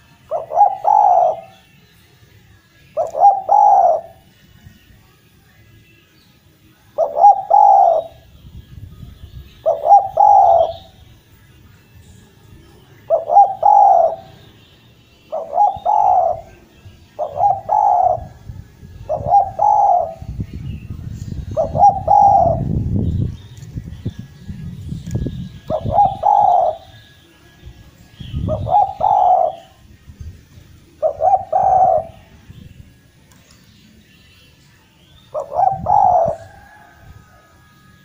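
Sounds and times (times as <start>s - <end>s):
dove cooing: 0.0s - 1.6s, 3.0s - 4.2s, 6.9s - 8.3s, 9.6s - 11.0s, 13.0s - 14.4s, 15.3s - 20.4s, 21.4s - 22.8s, 25.6s - 27.0s, 28.2s - 29.8s, 31.0s - 32.3s, 35.3s - 37.7s.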